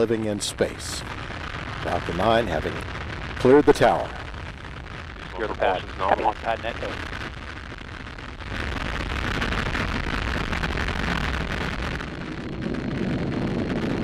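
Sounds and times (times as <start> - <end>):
rocket engines roaring: 0.0 - 7.4.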